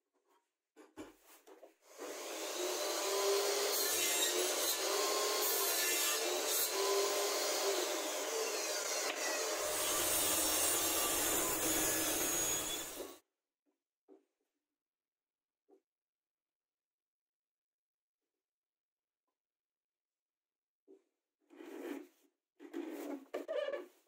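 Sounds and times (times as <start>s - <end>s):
table saw cutting plywood: 1.8s - 13.2s.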